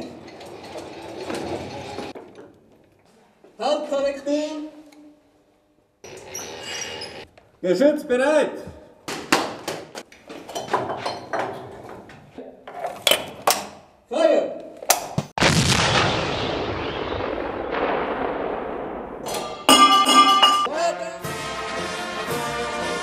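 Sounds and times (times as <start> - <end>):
metallic clanks and knocks: 10.4 - 13.7
cannon shot booming: 15.4 - 19.7
brass music: 19.7 - 23.0.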